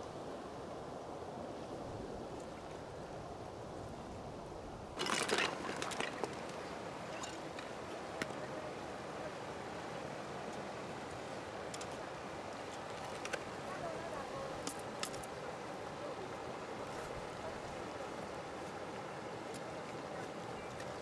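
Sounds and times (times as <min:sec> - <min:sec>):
handling noise: 0:05.0 - 0:08.4
knife clicking against mussel shells: 0:14.6 - 0:15.3.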